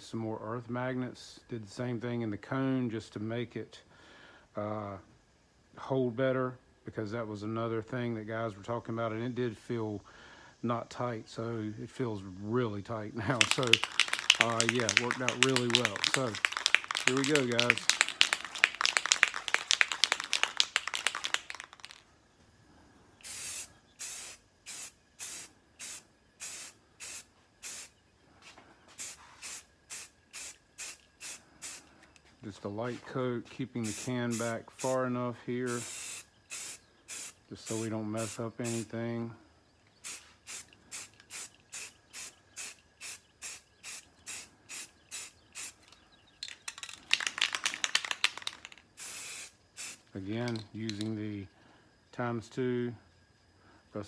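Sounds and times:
spray can mixing ball rattling: 0:13.3 - 0:22.0, 0:46.4 - 0:51.1
spray paint hissing bursts: 0:13.3 - 0:22.0, 0:23.2 - 0:28.0, 0:29.0 - 0:32.0, 0:33.8 - 0:35.0, 0:35.7 - 0:38.9, 0:40.0 - 0:45.9, 0:46.6 - 0:51.1.

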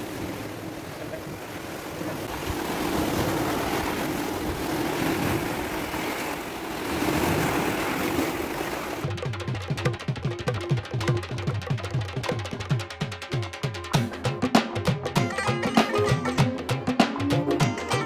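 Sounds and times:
sea waves breaking against rocks: 0:00.0 - 0:09.2.

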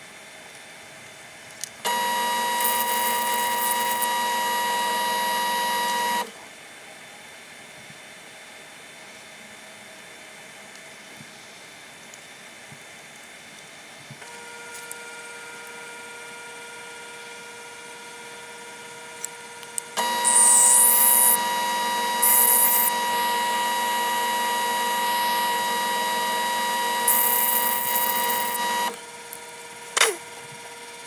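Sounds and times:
drill cutting into steel: 0:01.9 - 0:06.3, 0:19.9 - 0:29.0
metal lathe whining: 0:01.9 - 0:06.3, 0:20.0 - 0:29.0.

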